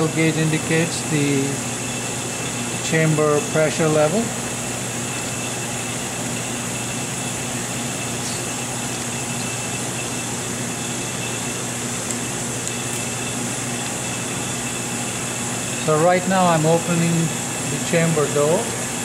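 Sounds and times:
machinery hum: 0.0 - 19.0.

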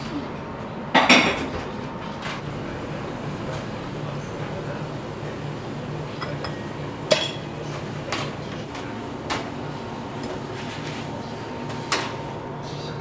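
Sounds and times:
steady low hum: 0.0 - 13.0
dishes clinking: 6.1 - 7.5.

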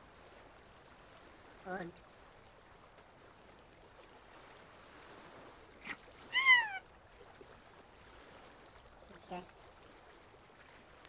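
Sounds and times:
cartoon cry sliding down: 5.8 - 6.8.

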